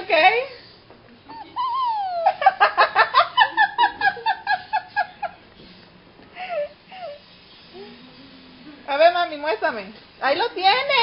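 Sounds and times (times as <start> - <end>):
girl laughing and giggling: 1.8 - 5.4.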